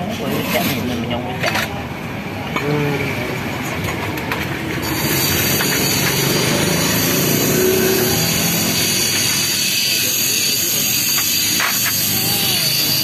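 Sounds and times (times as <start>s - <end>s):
motor engine running: 4.8s - 13.0s.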